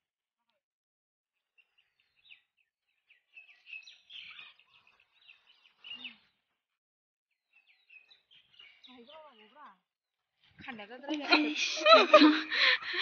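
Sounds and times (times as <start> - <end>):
small birds chirping: 1.4 - 6.6, 7.3 - 11.5.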